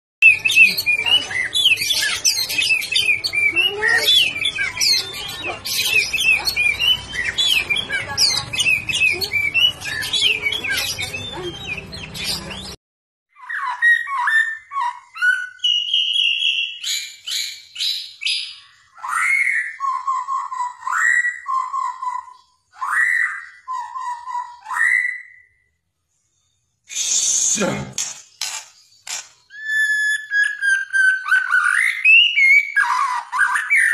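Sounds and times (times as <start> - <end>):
bird singing whistles and chatter: 0.2 - 12.8, 13.4 - 25.5, 28.4 - 33.9
bird whistling sparse phrases: 26.9 - 27.8.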